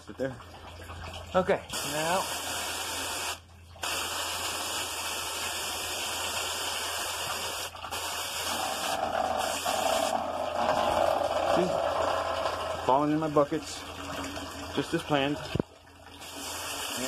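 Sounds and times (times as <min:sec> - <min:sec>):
hose nozzle spraying water: 0:01.7 - 0:12.6, 0:16.2 - 0:17.0.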